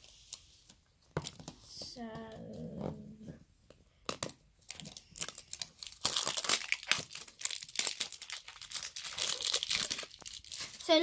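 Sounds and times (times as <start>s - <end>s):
plastic wrapper crinkling and tearing: 4.0s - 11.0s.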